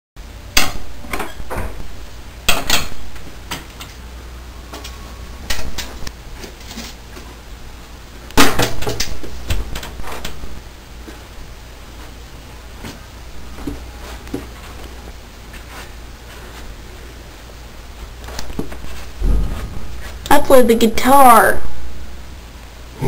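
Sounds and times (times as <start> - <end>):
sharp knocks and clattering bangs: 8.4 - 10.4, 19.2 - 20.4.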